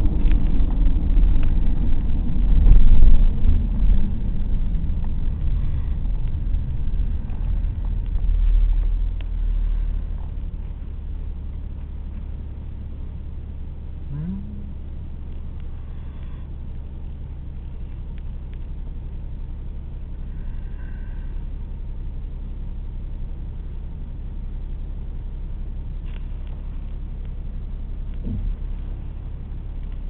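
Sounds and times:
car engine idling: 0.0 - 30.0.

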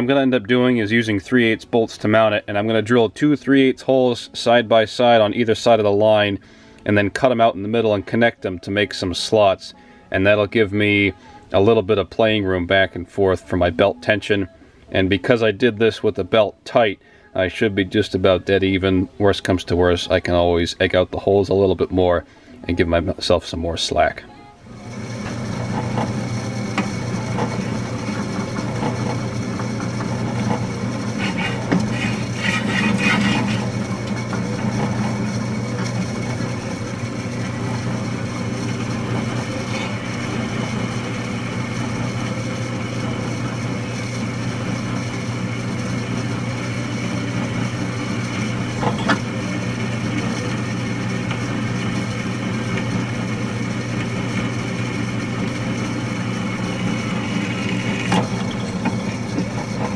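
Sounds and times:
drill press motor hum: 24.3 - 59.9
drill bit cutting metal: 24.7 - 59.9.

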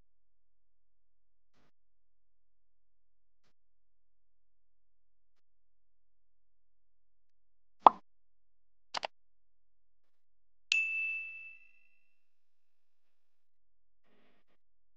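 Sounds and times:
bell ding: 10.7 - 12.0.

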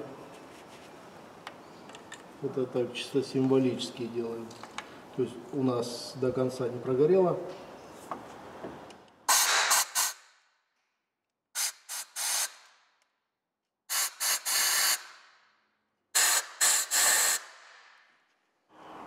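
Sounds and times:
short hissing spray blasts: 9.3 - 10.2, 11.6 - 12.6, 13.9 - 15.1, 16.2 - 17.8.

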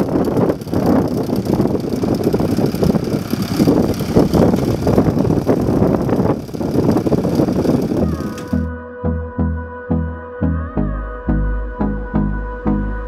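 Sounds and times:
tractor engine chugging: 0.0 - 8.7.

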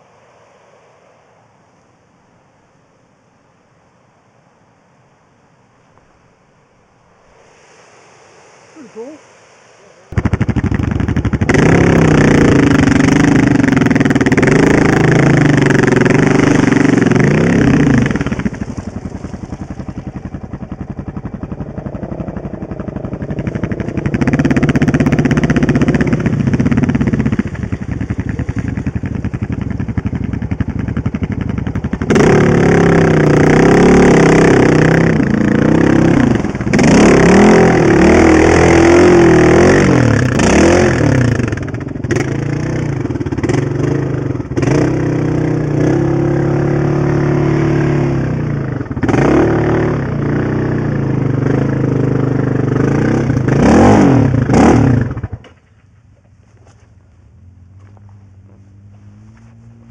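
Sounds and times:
quad bike engine revving: 10.1 - 55.6.

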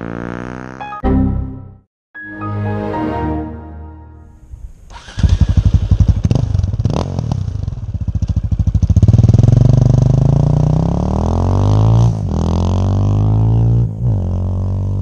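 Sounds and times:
motorcycle accelerating away: 0.0 - 0.8, 4.9 - 15.0.

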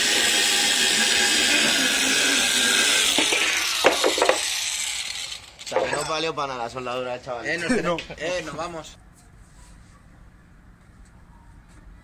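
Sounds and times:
grinder winding down: 0.0 - 6.1
angle grinder on metal: 0.0 - 6.2.

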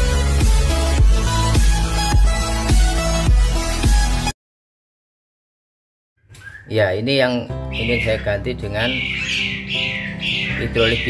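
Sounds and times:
electronic music with heavy bass: 0.0 - 4.3.

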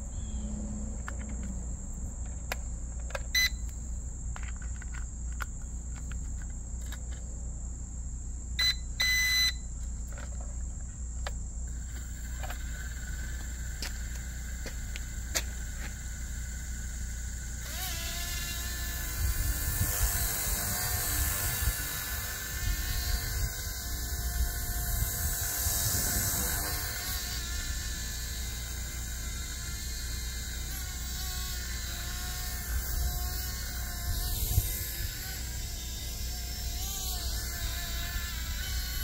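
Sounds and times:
faint steady whine: 0.0 - 39.0
short electronic beeps: 3.3 - 3.6, 8.6 - 9.7
helicopter motor and rotor drone: 11.7 - 39.0.

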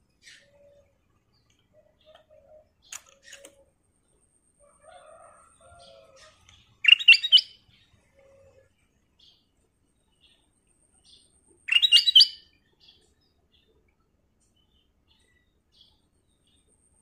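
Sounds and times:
bird chirping: 0.0 - 4.4, 5.6 - 17.0
soft bird call notes: 6.5 - 7.5.

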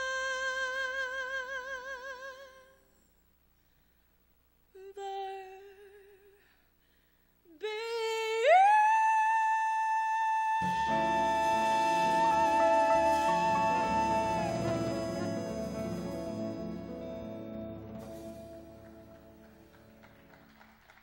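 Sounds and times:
woman singing jazz: 0.0 - 2.8, 4.8 - 6.4, 7.5 - 17.1
jazz band playing: 10.6 - 20.2.

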